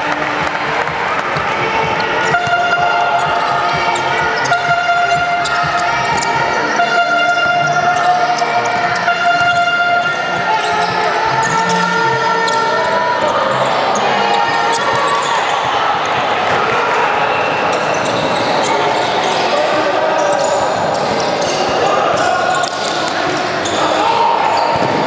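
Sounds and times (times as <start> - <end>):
voices in a hall: 0.0 - 25.0
basketball bouncing: 0.2 - 13.6, 24.6 - 25.0.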